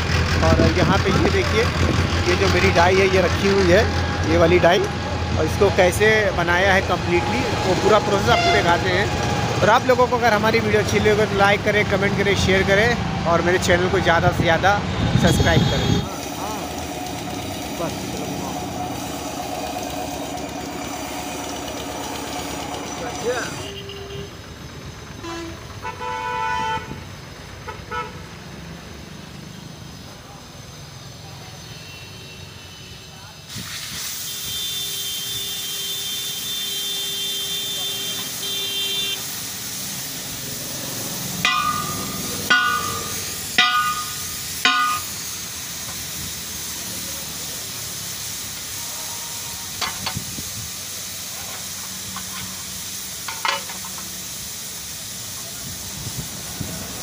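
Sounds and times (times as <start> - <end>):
vehicle horns honking: 7.1 - 9.6, 15.0 - 17.1, 18.1 - 24.5, 25.2 - 28.2, 31.7 - 33.4, 34.2 - 39.4, 41.4 - 45.1, 48.8 - 50.1
steady hiss: 33.4 - 57.0
metal clanks and clinks: 41.4 - 45.2, 53.2 - 54.1.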